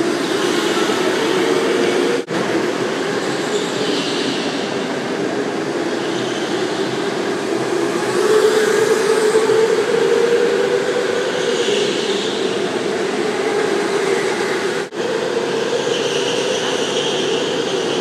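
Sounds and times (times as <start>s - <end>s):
go-kart motor whine: 5.4s - 18.0s.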